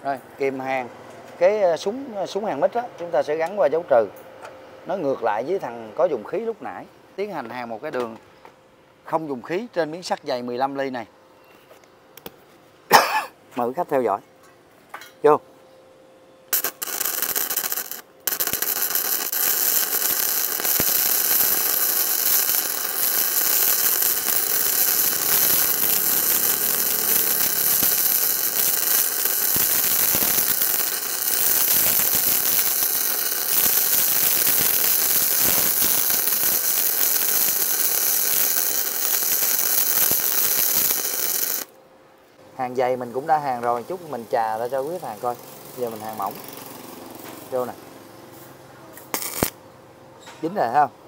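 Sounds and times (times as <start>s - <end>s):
welding arc crackling: 16.5s - 41.8s, 42.7s - 47.8s, 49.0s - 49.6s.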